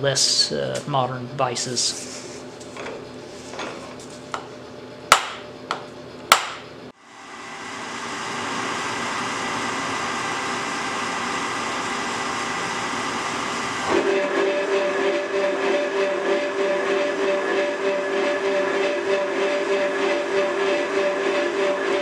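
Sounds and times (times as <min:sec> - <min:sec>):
electric motor starting and running: 0:07.0 - 0:22.0.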